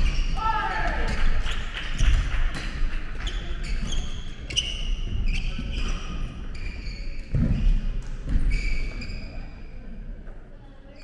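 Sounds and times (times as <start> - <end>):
sneakers squeaking on wooden floor: 3.2 - 9.7.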